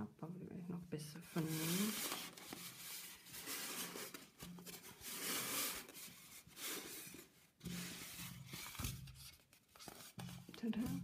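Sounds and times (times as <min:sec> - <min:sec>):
wool hat rustling on foam head: 0:01.2 - 0:11.0.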